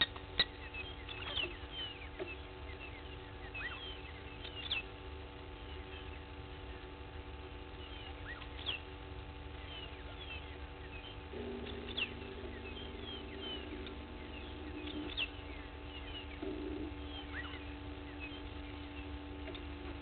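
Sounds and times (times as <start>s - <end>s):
birds chirping: 0.0s - 20.0s
low drawn-out bird call: 9.5s - 20.0s
sharp downward bird notes: 9.7s - 19.7s.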